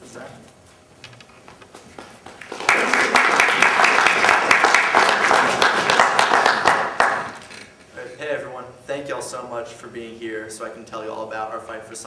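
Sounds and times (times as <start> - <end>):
audience applauding: 2.2 - 7.5.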